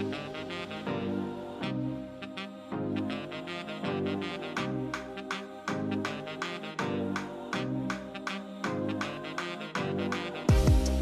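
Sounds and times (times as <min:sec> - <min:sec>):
jazzy instrumental music with horn lead: 0:00.0 - 0:11.0.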